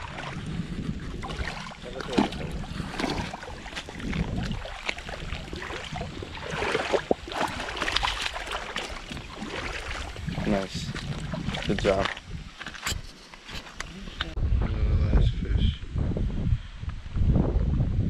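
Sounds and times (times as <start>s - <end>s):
water splashing: 0.0s - 12.8s
wind rumbling on microphone: 0.0s - 18.0s.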